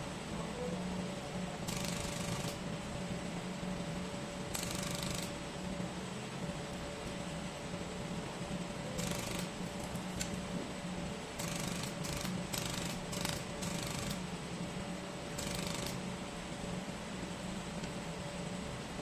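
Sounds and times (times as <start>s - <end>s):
machine hum: 0.0s - 19.0s
laser welder crackling hiss: 1.7s - 2.6s, 4.5s - 5.5s, 9.0s - 10.4s, 11.3s - 14.3s, 15.3s - 16.2s.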